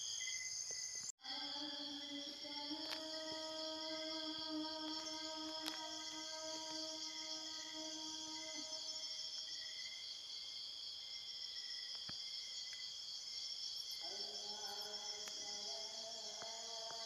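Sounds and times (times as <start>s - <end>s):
crickets and insects chirring: 0.0s - 17.0s.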